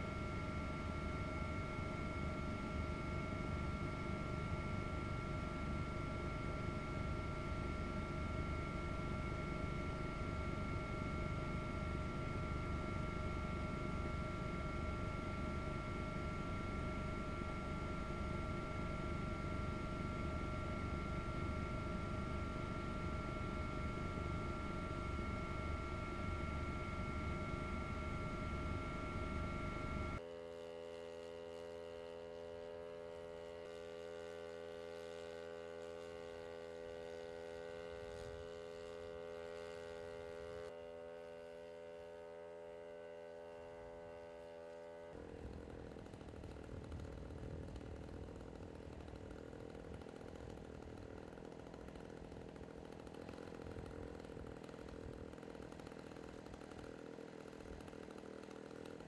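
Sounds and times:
engine running steadily: 0.0 - 59.0.

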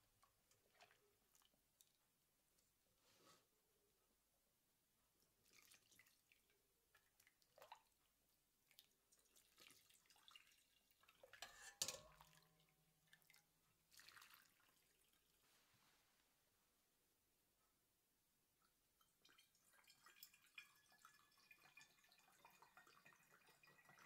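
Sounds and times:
liquid splashing and trickling: 5.4 - 8.0, 8.6 - 15.4, 19.0 - 24.0
ladle clinking on metal pot: 11.4 - 12.4.

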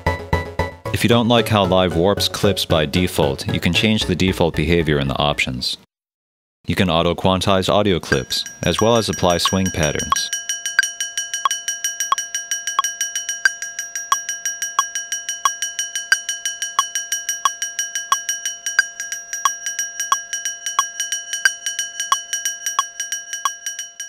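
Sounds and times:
ringing metallic percussion hits: 8.2 - 24.0.

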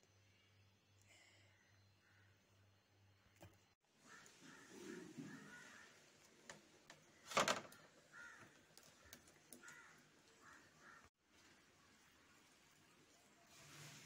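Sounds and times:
crows cawing: 4.0 - 6.1, 7.7 - 11.1.

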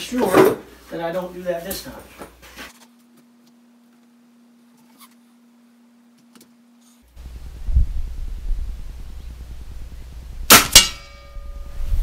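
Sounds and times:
faint steady hum: 0.0 - 12.0
wind buffeting microphone: 7.2 - 10.5.

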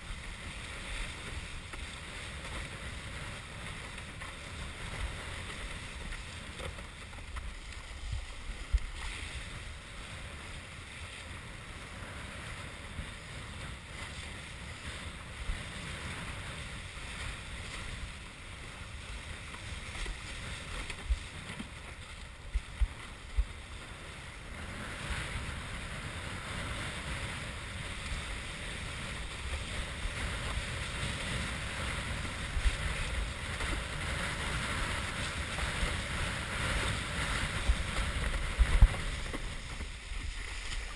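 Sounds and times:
water rushing along board: 0.0 - 40.9
wind buffeting microphone: 22.5 - 40.9.

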